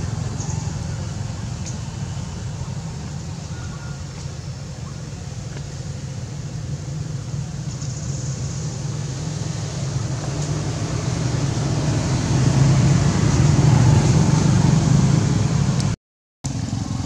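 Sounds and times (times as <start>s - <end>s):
passing vehicle engine hum: 0.0s - 17.0s.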